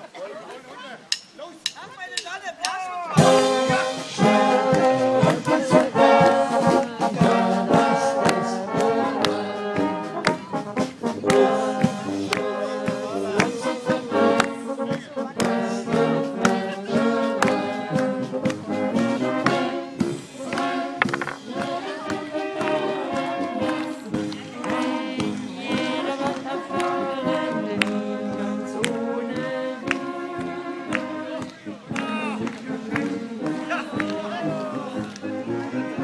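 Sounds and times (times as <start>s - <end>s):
drums and cymbals: 1.1s - 27.8s
brass band playing: 3.1s - 36.0s.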